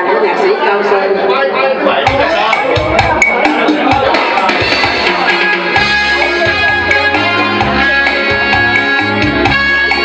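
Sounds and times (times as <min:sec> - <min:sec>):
electronic keyboard music: 0:01.9 - 0:10.0.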